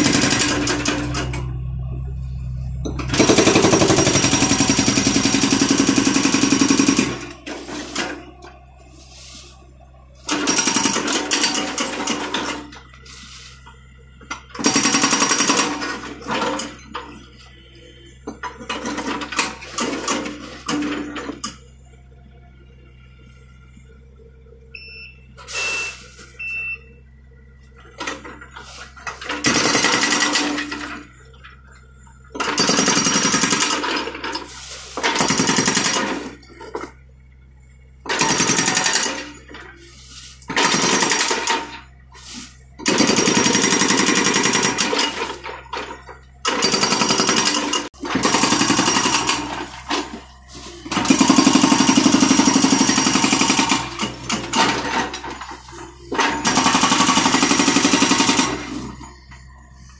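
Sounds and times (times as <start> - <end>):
hydraulic breaker hammering concrete: 0.0 - 1.3, 2.8 - 8.1, 29.2 - 31.1, 32.4 - 34.2, 35.0 - 36.5, 38.1 - 39.6, 40.5 - 41.8, 42.8 - 50.2, 50.9 - 59.1.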